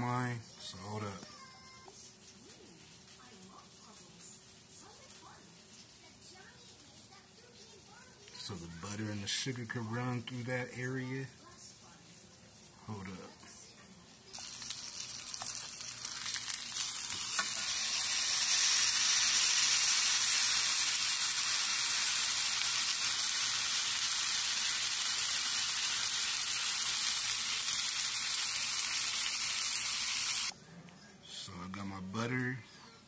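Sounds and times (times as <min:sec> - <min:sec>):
meat sizzling in a skillet: 0:14.2 - 0:30.5.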